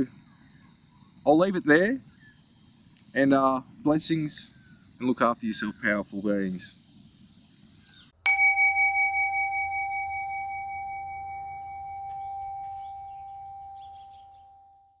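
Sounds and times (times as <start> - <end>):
singing bowl ringing: 8.2 - 15.0.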